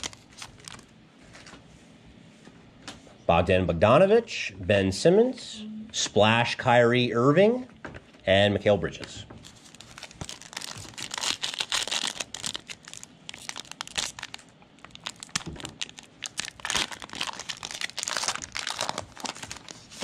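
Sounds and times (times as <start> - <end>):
card pack wrappers crinkling and tearing: 0.0 - 1.5, 9.4 - 20.0.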